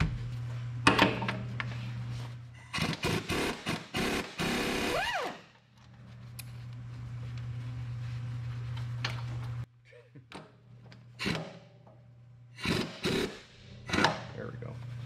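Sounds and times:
air impact wrench hammering: 2.8 - 5.0, 11.2 - 11.8, 12.5 - 14.4.

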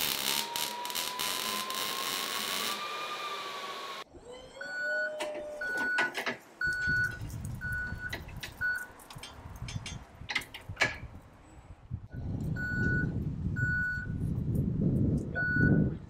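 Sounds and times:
forklift warning alarm beeping: 4.5 - 8.9, 12.1 - 14.2, 15.4 - 16.0
sharp knocks and clatters: 8.1 - 11.1.

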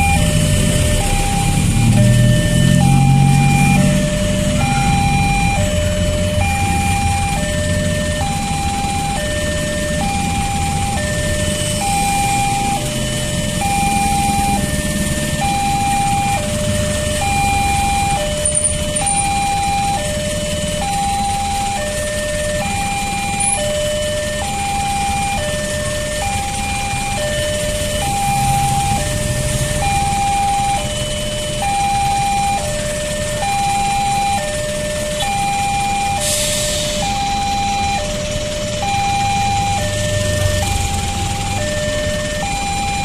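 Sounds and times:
idling cars and motorcycles: 0.0 - 43.0
two-tone crossing alarm: 0.0 - 43.0
vehicle engines running: 0.0 - 43.0.

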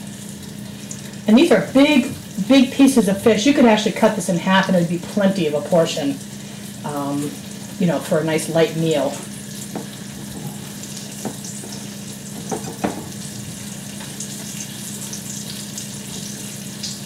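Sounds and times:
fish frying in hot oil: 0.0 - 17.0
low steady hum: 0.0 - 17.0.

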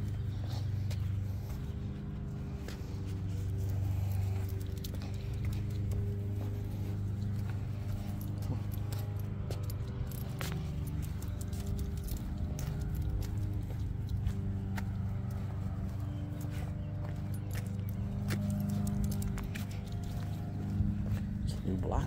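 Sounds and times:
leash hardware jingling: 0.0 - 22.0
steady low hum: 0.0 - 22.0.

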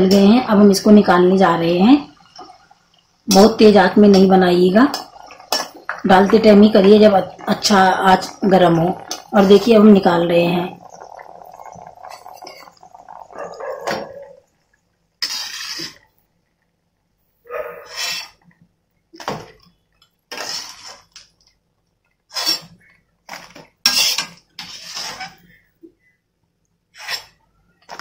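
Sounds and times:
metal spoon scraping wok: 15.2 - 16.0, 17.8 - 18.4, 20.3 - 21.1, 22.3 - 22.7, 23.9 - 25.4, 27.0 - 27.4.

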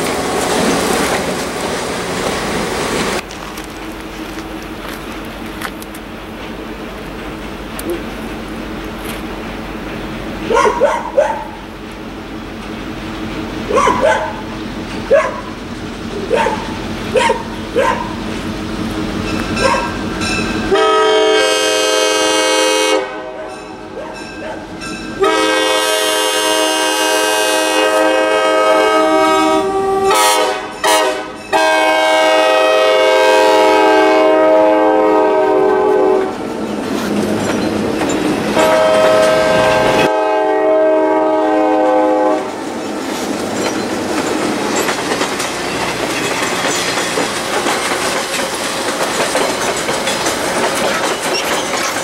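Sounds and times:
wheels clattering over rail joints: 0.0 - 20.8, 36.0 - 40.1, 42.5 - 52.0
locomotive air horn blasts: 20.7 - 23.8, 25.2 - 36.4, 38.6 - 42.6.

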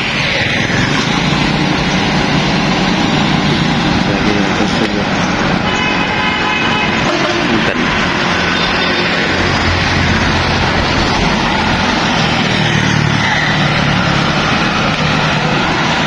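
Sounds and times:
passing vehicles on road: 0.0 - 16.0
vehicle engine hum: 0.0 - 16.0.

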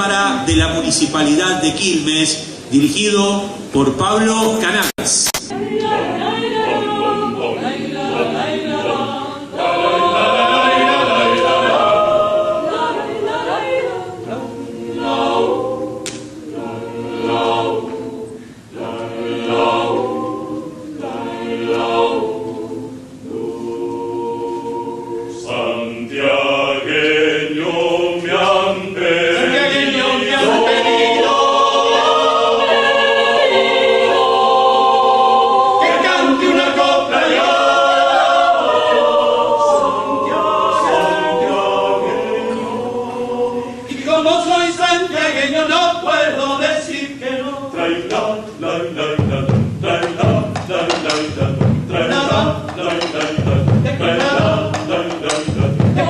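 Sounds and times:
choir singing a cappella: 5.4 - 56.0.

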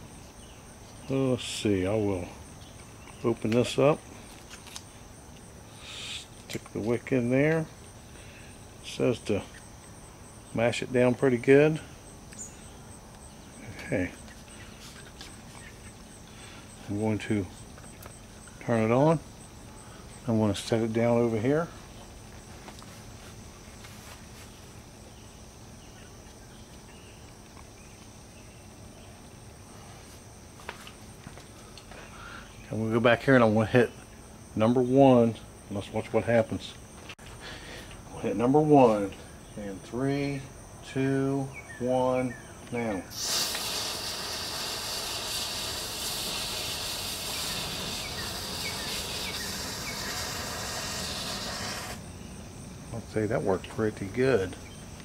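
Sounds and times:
fuse burning with hiss: 0.0 - 24.8, 43.0 - 52.3
insect chorus chirring: 0.0 - 55.0.

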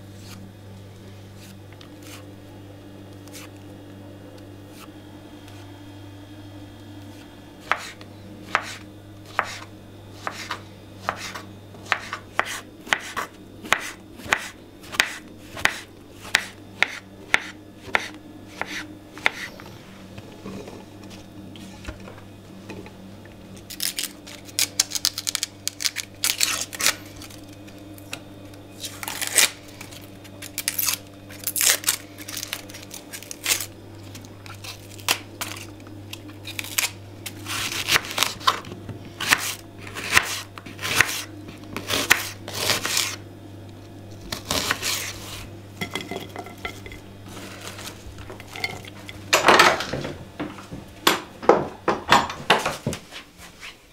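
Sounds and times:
low steady hum: 0.0 - 53.1
knife scraping on a board: 0.1 - 0.4, 1.4 - 2.3, 3.2 - 3.6, 7.1 - 19.8, 39.2 - 43.2, 44.4 - 48.9
knife chopping on a wooden board: 7.6 - 19.5, 39.2 - 43.2.

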